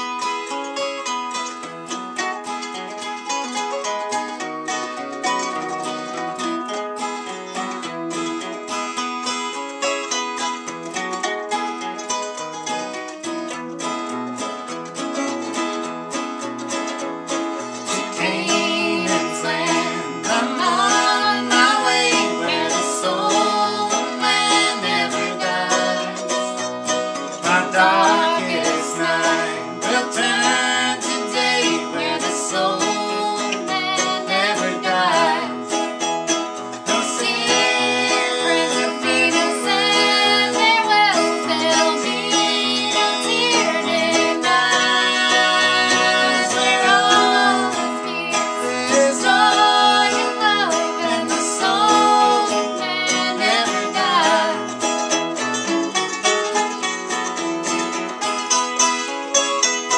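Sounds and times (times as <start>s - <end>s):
acoustic guitars strumming: 0.0s - 59.9s
woman singing: 17.9s - 26.8s, 27.4s - 36.0s, 36.8s - 54.9s.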